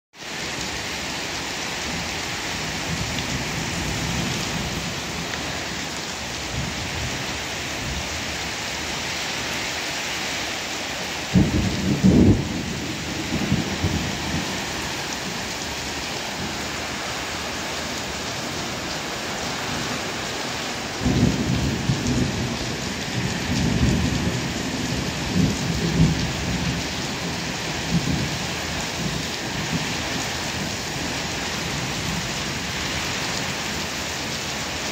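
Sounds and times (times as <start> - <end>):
heavy rain on pavement and cars: 0.1 - 34.9
rolling thunder rumble: 11.2 - 18.1, 20.8 - 33.6
loud thunder crack: 11.3 - 14.8, 21.0 - 22.6.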